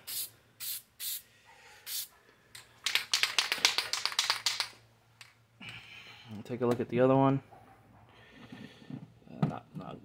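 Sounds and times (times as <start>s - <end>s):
spray can hissing: 0.0s - 1.2s, 1.9s - 2.1s
spray can ball rattling: 2.8s - 4.8s.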